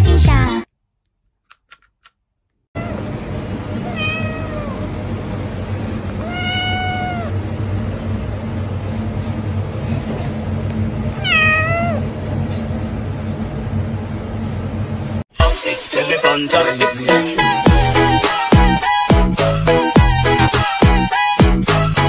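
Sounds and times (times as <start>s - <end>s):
young cat meowing: 3.8s - 4.9s, 6.2s - 7.4s, 11.2s - 12.1s.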